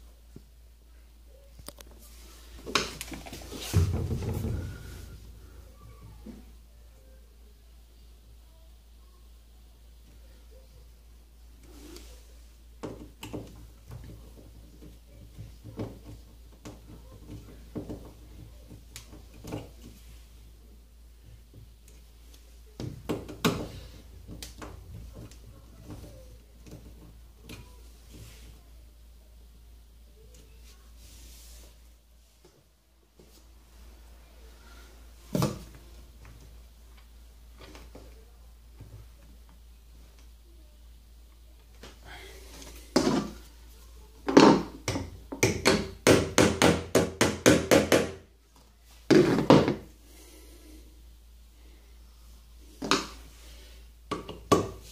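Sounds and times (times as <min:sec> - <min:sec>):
plastic shelf support knocks: 0:03.6 - 0:05.0.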